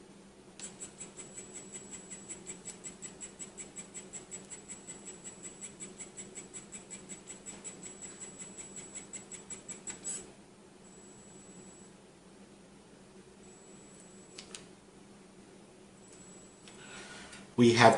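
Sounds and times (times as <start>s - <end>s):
printing pen motor clicking and humming: 0.6s - 10.3s.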